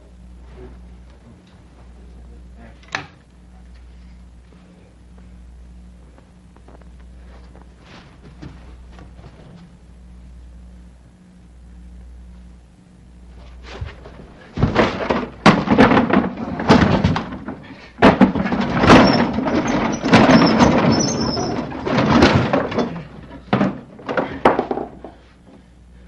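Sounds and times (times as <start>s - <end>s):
wooden chest thudding on floorboards: 13.8s - 21.0s.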